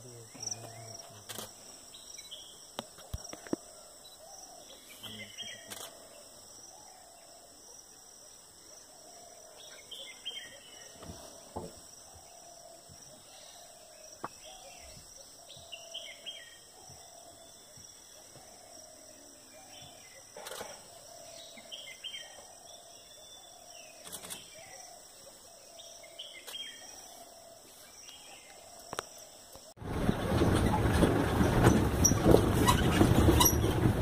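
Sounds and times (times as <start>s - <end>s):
birds calling: 8.7s - 34.0s.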